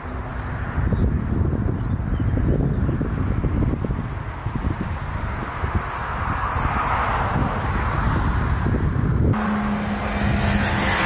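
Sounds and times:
wind rumbling on microphone: 0.0s - 11.0s
jet airliner flying past: 6.2s - 11.0s.

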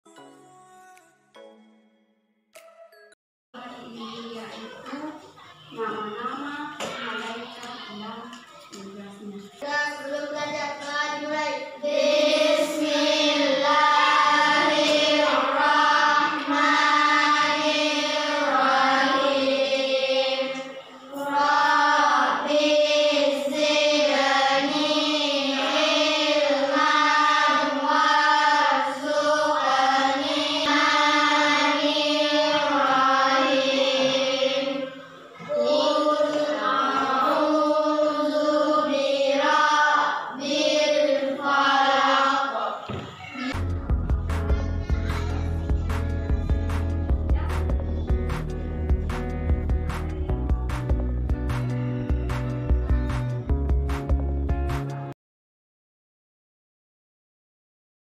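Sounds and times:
schoolchildren singing in unison: 9.6s - 44.0s.

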